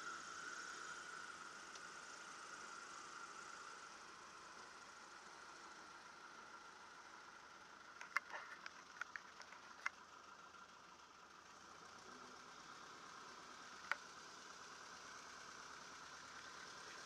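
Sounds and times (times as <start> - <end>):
sharp clicks: 8.0 - 10.0.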